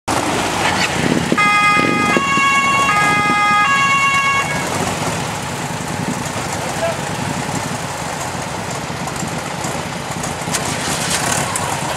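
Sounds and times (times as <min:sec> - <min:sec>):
vehicle engines running: 0:00.1 - 0:11.9
two-tone police siren: 0:01.4 - 0:04.8.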